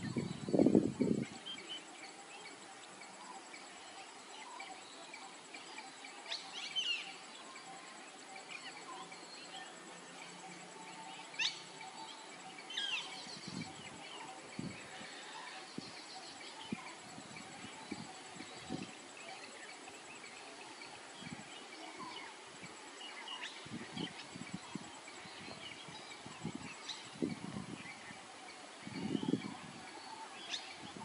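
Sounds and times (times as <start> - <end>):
faint insect hum: 0.0 - 31.0.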